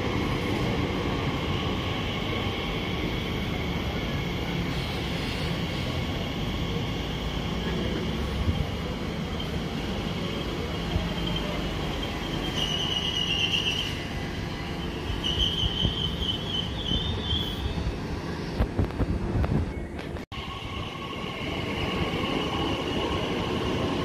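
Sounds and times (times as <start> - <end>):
train wheels rumbling on rail: 0.0 - 24.0
high squeal: 9.3 - 17.8.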